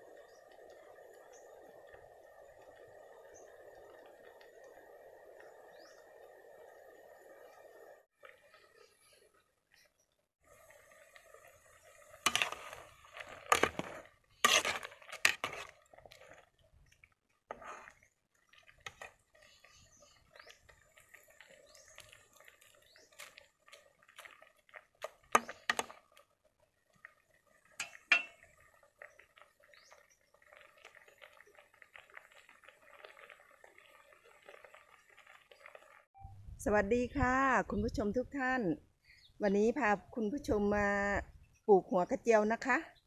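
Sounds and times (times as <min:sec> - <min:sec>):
metal ladle clanking in pot: 0:27.8 - 0:28.4.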